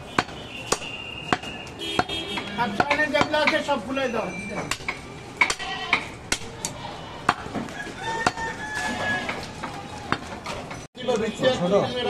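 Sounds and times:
rooster crowing: 7.6 - 9.8.

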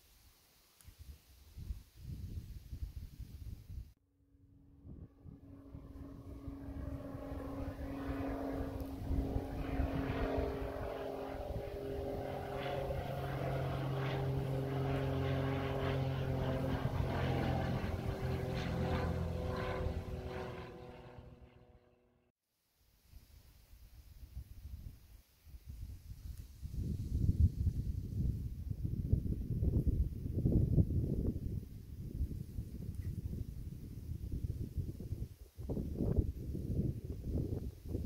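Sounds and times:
propeller airplane engine drone: 4.0 - 22.3.

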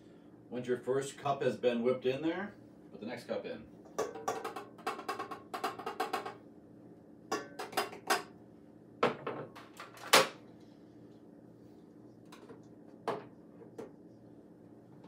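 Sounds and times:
kitchenware knocking steel bowl: 4.0 - 6.4.

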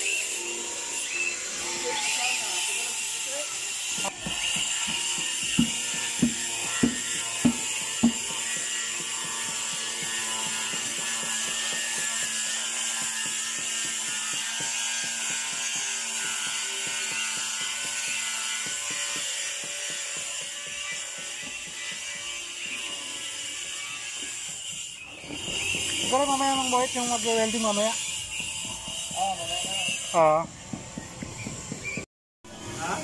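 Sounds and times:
plastic bucket knocking: 4.2 - 8.2.

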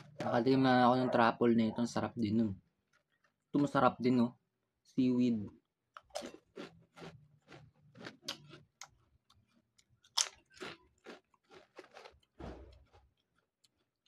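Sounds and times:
potato chips crunching: 6.0 - 14.0.

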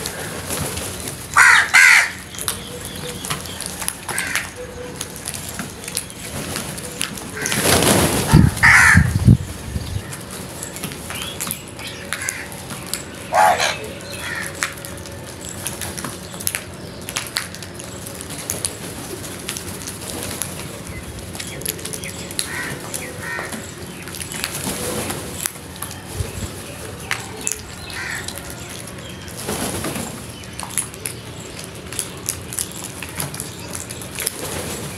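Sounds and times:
crow wingbeats: 0.0 - 9.2, 11.1 - 15.1, 21.4 - 25.2, 27.0 - 34.9
crows cawing: 1.3 - 2.3, 4.0 - 4.7, 7.4 - 7.6, 8.3 - 9.2, 12.2 - 12.6, 13.3 - 14.8, 22.4 - 23.7, 27.8 - 28.7.

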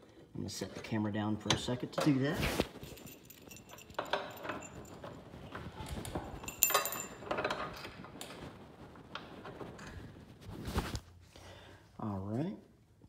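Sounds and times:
metal bracket knocking and rattling: 3.0 - 8.2.

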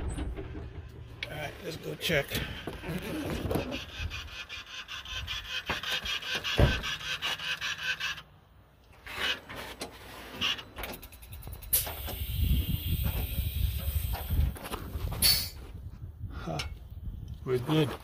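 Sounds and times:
phone handling rubbing and scraping: 2.4 - 8.2.

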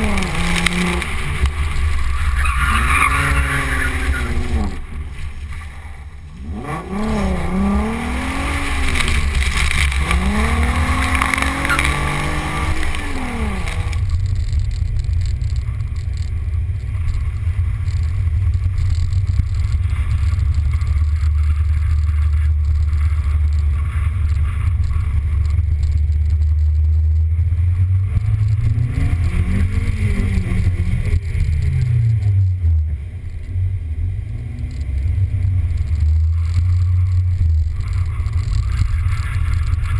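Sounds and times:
water spray from tyres: 0.0 - 6.0, 7.1 - 14.0
car engine revving: 0.0 - 39.9.

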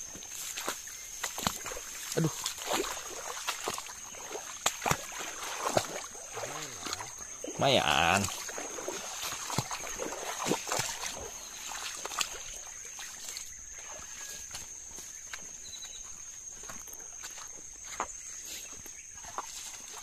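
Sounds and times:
insects buzzing: 0.0 - 20.0
footsteps splashing through water: 0.1 - 20.0.

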